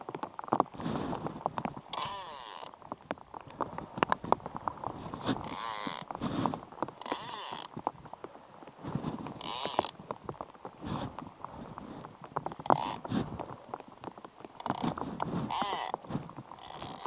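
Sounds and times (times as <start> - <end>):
fly reel clicks: 5.4 - 6.1, 7.0 - 7.7, 9.4 - 10.0, 12.7 - 13.0, 14.6 - 14.9, 15.5 - 15.9, 16.6 - 17.0.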